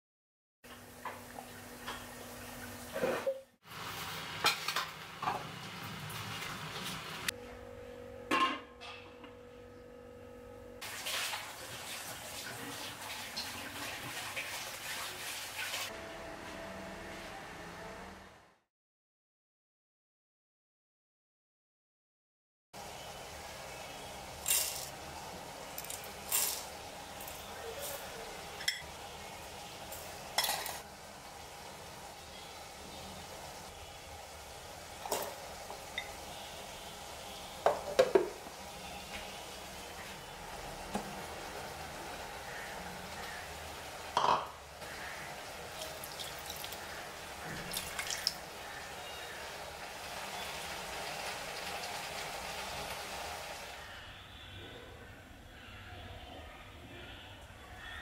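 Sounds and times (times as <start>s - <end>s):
seeds pattering into metal jar: 24.4s - 24.9s, 25.8s - 27.4s
water pouring into metal jar: 45.8s - 46.8s, 47.6s - 48.4s
splashes and clinks: 47.6s - 48.4s.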